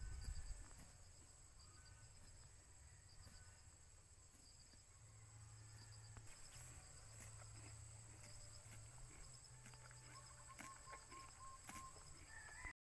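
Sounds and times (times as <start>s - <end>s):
insects droning: 0.0s - 12.7s.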